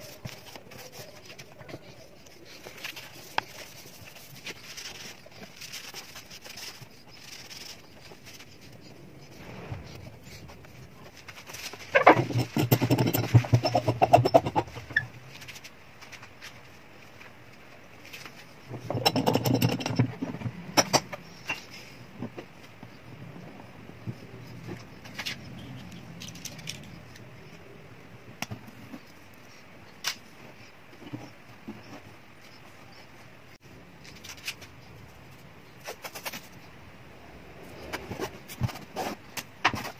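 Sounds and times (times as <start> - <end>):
faint low hum: 0.0 - 39.9.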